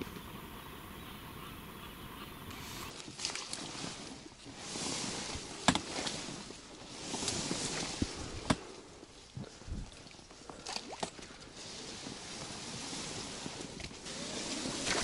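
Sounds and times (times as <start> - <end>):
faint outdoor hiss: 0.0 - 10.6
water drips and splashes: 2.9 - 4.0.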